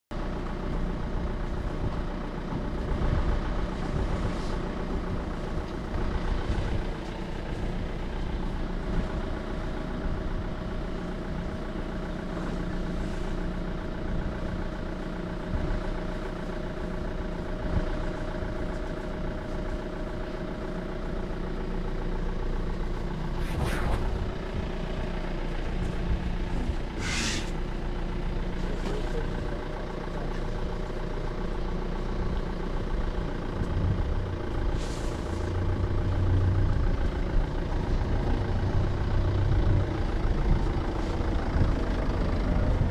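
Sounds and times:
vehicle engine idling: 0:00.1 - 0:42.9
short hissing bursts: 0:27.0 - 0:27.5.

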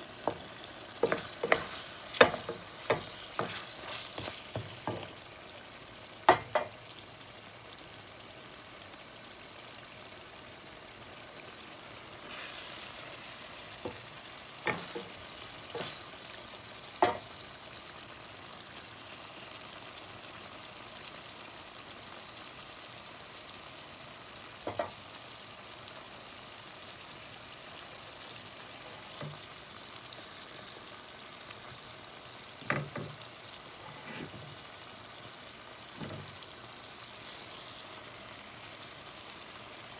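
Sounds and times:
curry sizzling in frying pan: 0:00.0 - 0:39.9
spatula knocking against pan: 0:00.3 - 0:03.6.

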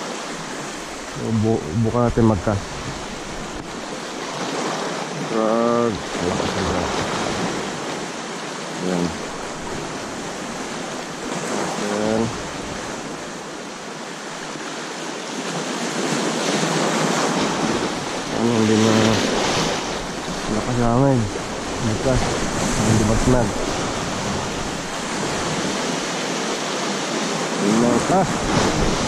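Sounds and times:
sea waves washing over rocks: 0:00.0 - 0:29.0
wind buffeting microphone: 0:00.4 - 0:04.1, 0:16.8 - 0:26.1, 0:27.7 - 0:29.0
person's voice: 0:01.2 - 0:02.7, 0:05.3 - 0:07.0, 0:08.8 - 0:09.2, 0:11.8 - 0:12.4, 0:18.3 - 0:19.2, 0:20.5 - 0:23.6, 0:27.6 - 0:28.4.

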